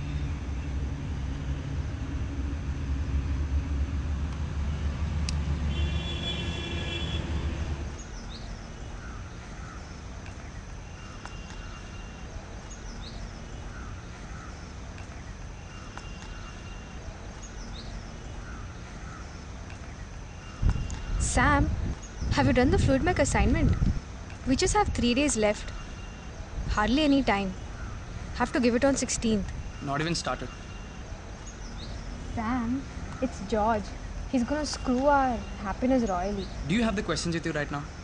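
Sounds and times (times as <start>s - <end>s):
low engine-like rumble: 0.0s - 10.9s.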